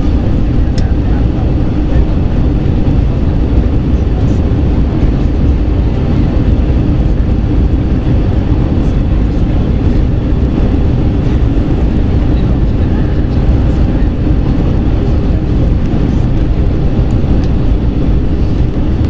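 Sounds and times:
airliner cabin engine rumble: 0:00.0 - 0:19.0.

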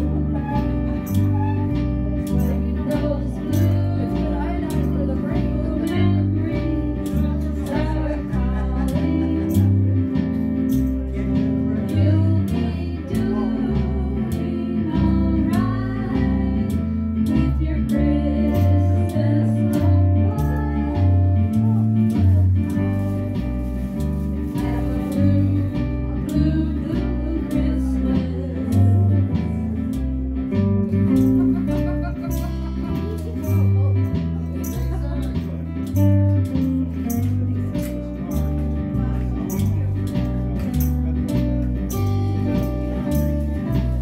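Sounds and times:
electric guitar: 0:00.0 - 0:44.0
plucked string instrument: 0:00.0 - 0:44.0
woman singing into a microphone: 0:02.3 - 0:10.3, 0:11.6 - 0:22.8, 0:24.4 - 0:30.0.

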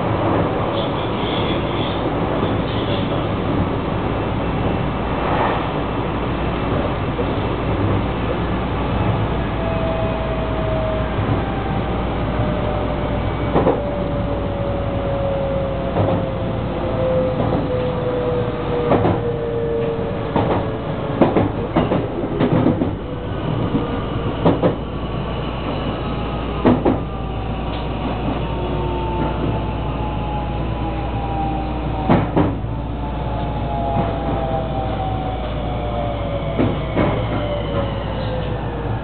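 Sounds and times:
train wheels clacking on rail joints: 0:18.8 - 0:24.8, 0:26.6 - 0:27.1.

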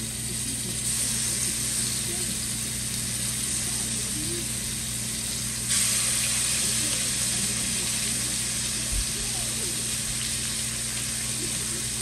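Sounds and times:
bacon sizzling in a frying pan: 0:00.0 - 0:12.0.

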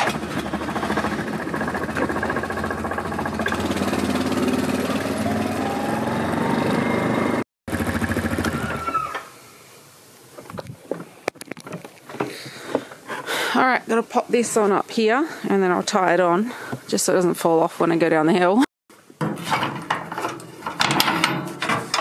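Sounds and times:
quad bike engine running: 0:00.0 - 0:08.9.

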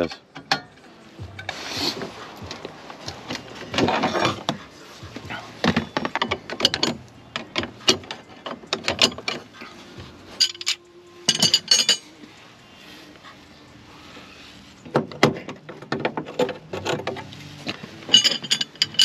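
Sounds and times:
tools knocking and rattling: 0:00.0 - 0:01.4, 0:02.5 - 0:09.7, 0:10.3 - 0:12.2, 0:14.9 - 0:19.0
ringing metal clinks: 0:10.3 - 0:12.4, 0:18.0 - 0:19.0.

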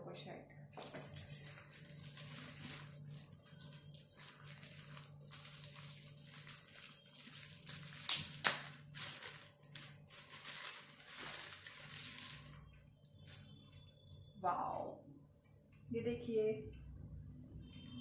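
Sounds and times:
plastic bag crinkling: 0:00.8 - 0:13.7.

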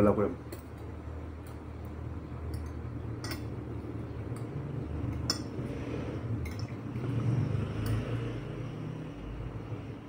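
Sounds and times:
steady low hum: 0:00.0 - 0:10.0
cutlery clinking on ceramic plate: 0:02.5 - 0:03.5.

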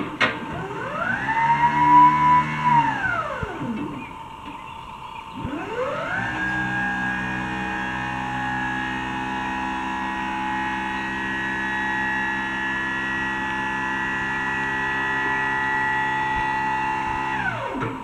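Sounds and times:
hydraulic pump motor humming: 0:00.0 - 0:18.0.

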